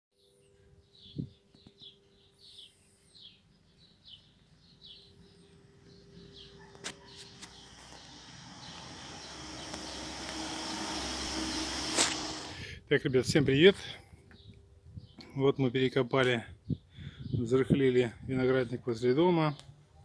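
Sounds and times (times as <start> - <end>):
small bird chirping: 0.2 - 10.0.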